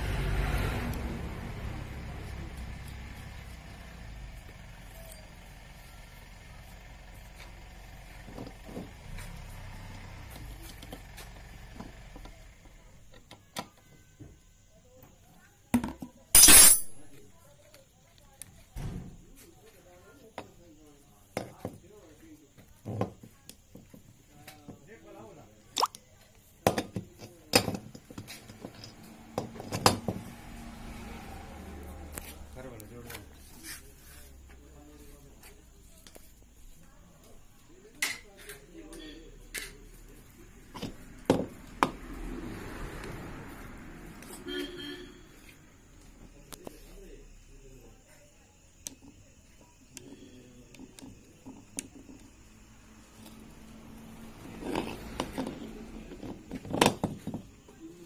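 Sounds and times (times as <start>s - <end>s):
metal parts clinking together: 16.4s - 17.2s.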